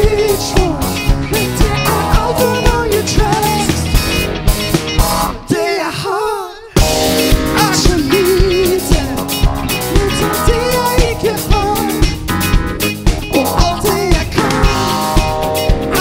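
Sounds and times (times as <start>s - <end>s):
person singing: 0.0s - 3.9s, 5.4s - 12.2s, 13.3s - 15.2s
electric guitars: 0.0s - 5.6s, 6.7s - 16.0s
drum kit beat: 0.0s - 5.7s, 6.7s - 16.0s
keyboard: 0.0s - 5.9s, 6.7s - 16.0s.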